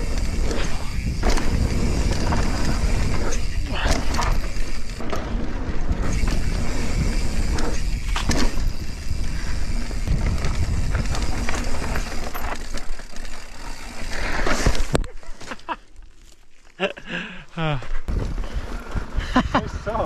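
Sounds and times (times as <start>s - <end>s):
wind noise on microphone: 0.0s - 12.6s, 18.1s - 20.0s
bike rattling over bumps: 0.0s - 20.0s
bike tyres rolling on dirt: 0.0s - 20.0s.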